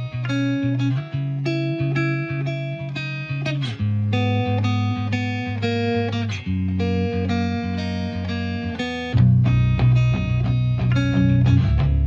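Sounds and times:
plucked guitar notes: 0.0s - 12.0s
low bass line: 6.4s - 12.0s.

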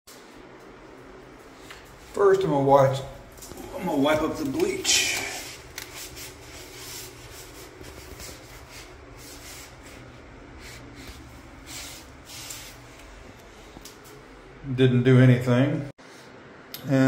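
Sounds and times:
exhaust fan humming: 0.1s - 17.0s
paper towel wiping wet tile: 3.7s - 13.1s.

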